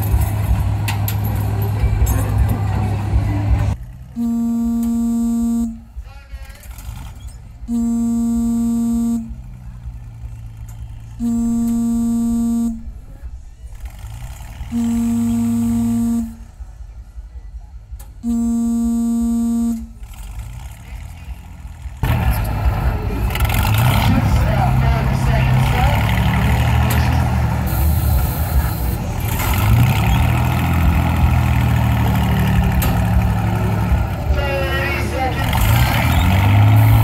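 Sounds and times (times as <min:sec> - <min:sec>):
vehicle engine: 0:00.0 - 0:37.0
horn blasts: 0:04.1 - 0:06.0, 0:07.6 - 0:09.5, 0:11.2 - 0:13.1, 0:14.6 - 0:16.6, 0:18.2 - 0:20.1.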